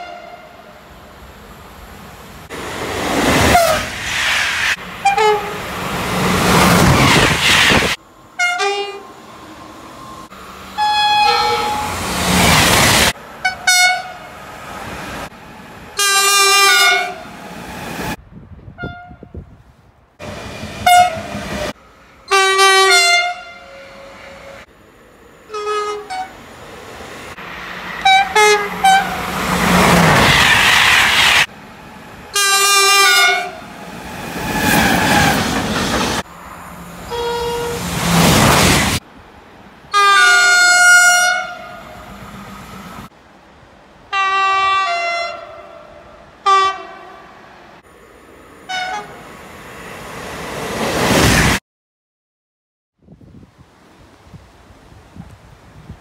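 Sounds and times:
train horn blasts: 0:00.0 - 0:00.7, 0:05.0 - 0:05.6, 0:08.4 - 0:09.2, 0:10.8 - 0:12.1, 0:13.4 - 0:14.3, 0:16.0 - 0:17.3, 0:18.8 - 0:19.4, 0:20.8 - 0:24.7, 0:25.5 - 0:26.4, 0:28.0 - 0:29.2, 0:32.3 - 0:33.6, 0:37.1 - 0:37.9, 0:39.9 - 0:42.0, 0:44.1 - 0:47.3, 0:48.7 - 0:49.2
trains passing at speed: 0:00.0 - 0:18.8, 0:19.7 - 0:51.6.

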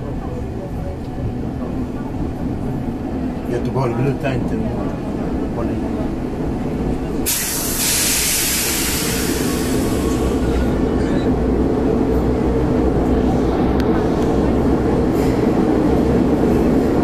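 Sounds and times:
train rumbling: 0:00.0 - 0:17.0
air hiss: 0:07.3 - 0:10.3.

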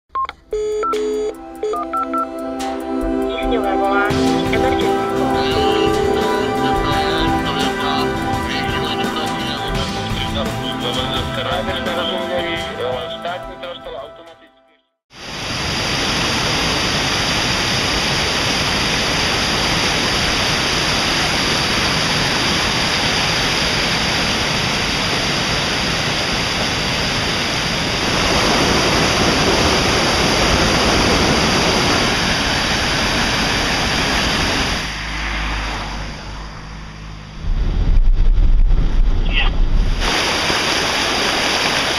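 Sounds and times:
floodwater rushing over stones: 0:15.2 - 0:34.9, 0:39.8 - 0:41.9.

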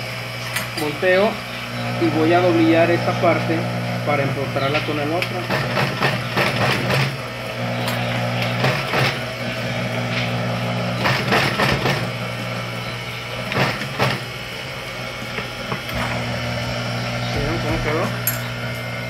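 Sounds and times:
sewing machine motor humming: 0:01.1 - 0:19.0
sewing machine clattering: 0:05.3 - 0:07.2, 0:11.0 - 0:12.1, 0:13.5 - 0:14.2.

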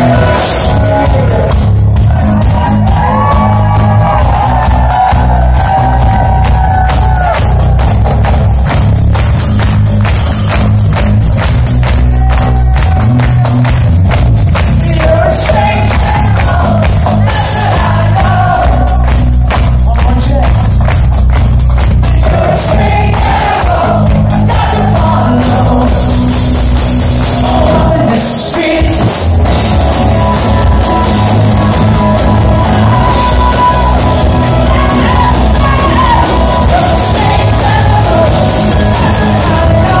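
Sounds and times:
man singing: 0:00.0 - 0:01.8, 0:14.7 - 0:19.2, 0:19.8 - 0:20.9, 0:22.0 - 0:26.4, 0:27.4 - 0:40.0
live rock band playing: 0:00.0 - 0:40.0.

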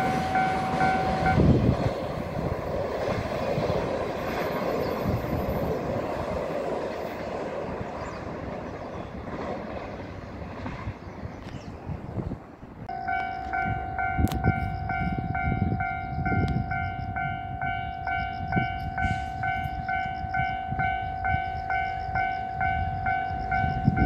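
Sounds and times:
pulsing electronic warning tone: 0:00.0 - 0:01.6, 0:12.9 - 0:24.0
train wagons rumbling on rails: 0:00.0 - 0:24.0.

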